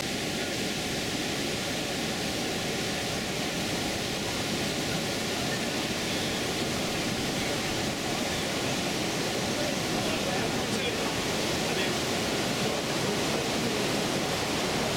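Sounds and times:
river rapids rushing: 0:00.0 - 0:14.9.

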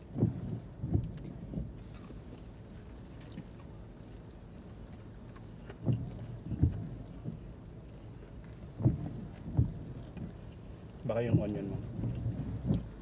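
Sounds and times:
car interior rumble: 0:00.0 - 0:13.0
soft dull thumps: 0:00.1 - 0:01.8, 0:05.7 - 0:07.6, 0:08.2 - 0:13.0.

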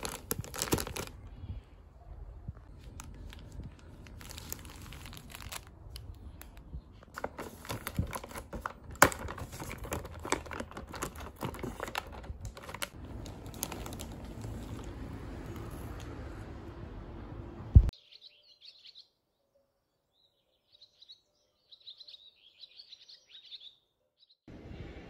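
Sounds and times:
plastic wrap crinkling: 0:00.0 - 0:01.3, 0:02.6 - 0:16.0.

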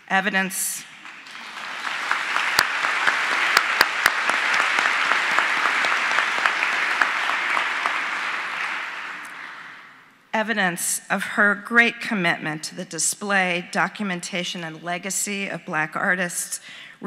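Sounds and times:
audience applauding: 0:00.9 - 0:10.0.

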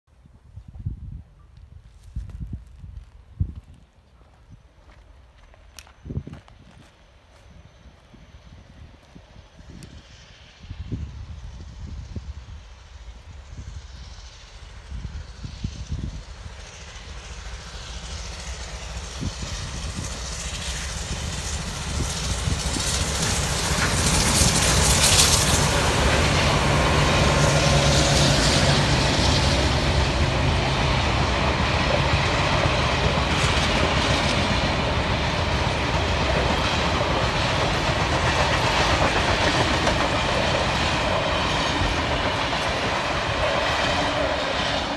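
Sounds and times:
steam locomotive passing: 0:00.6 - 0:44.9
train wheels clattering on track: 0:09.0 - 0:44.9.

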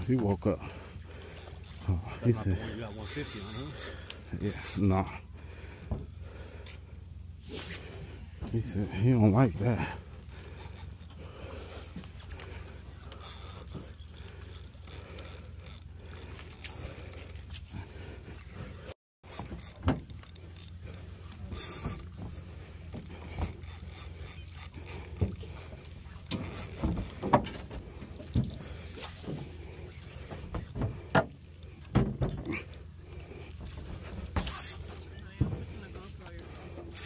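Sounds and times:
boat engine rumble: 0:00.0 - 0:37.0
fishing reel clicks: 0:02.6 - 0:05.2, 0:10.2 - 0:11.5, 0:12.3 - 0:17.4, 0:19.3 - 0:22.1, 0:22.9 - 0:27.2, 0:32.7 - 0:35.3, 0:36.2 - 0:37.0.

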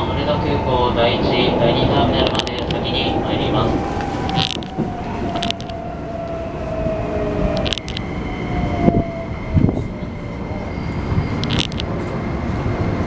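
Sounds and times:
train wheel and rail rumble: 0:00.0 - 0:13.0
sharp clicks: 0:04.2 - 0:05.8, 0:07.6 - 0:08.1.

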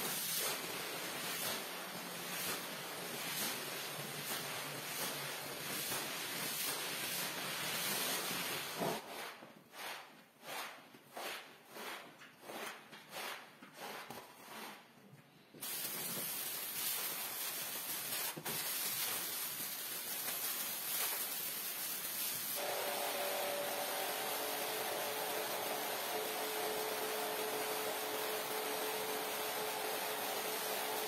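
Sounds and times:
squeegee scraping wet rug: 0:00.1 - 0:15.0
water spraying hiss: 0:15.6 - 0:31.0
pressure washer motor hum: 0:22.5 - 0:31.0.

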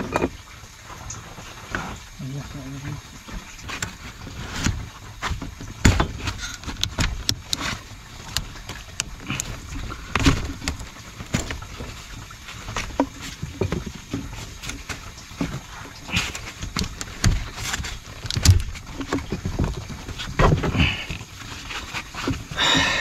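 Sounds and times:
plastic pipe fittings clicking: 0:06.4 - 0:11.6.

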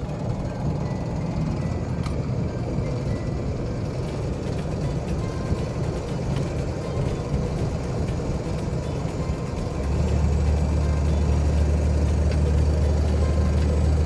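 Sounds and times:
road noise: 0:00.0 - 0:14.0
truck engine drone: 0:00.0 - 0:14.0.

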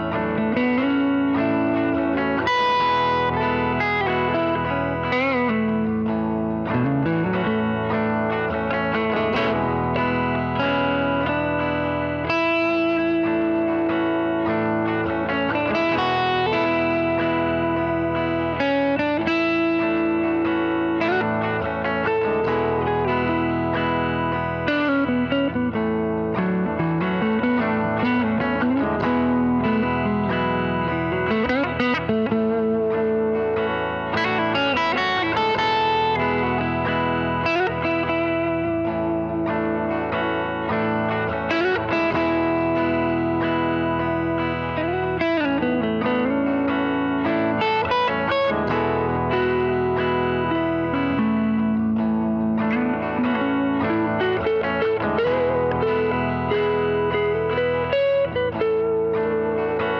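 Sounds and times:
electric guitar lead with bends: 0:00.0 - 0:59.9.

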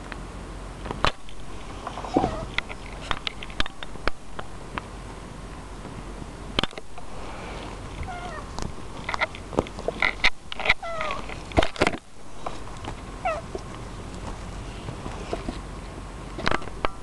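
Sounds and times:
clicks and rustles: 0:00.8 - 0:04.9, 0:05.5 - 0:15.7, 0:16.3 - 0:17.0
cat meowing: 0:02.2 - 0:02.5, 0:08.0 - 0:08.5, 0:10.8 - 0:11.3, 0:13.2 - 0:13.5.

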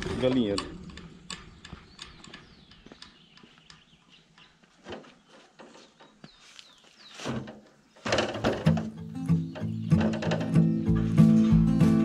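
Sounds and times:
small birds chirping: 0:00.2 - 0:12.0
metal wheelbarrow rattling: 0:07.2 - 0:12.0.

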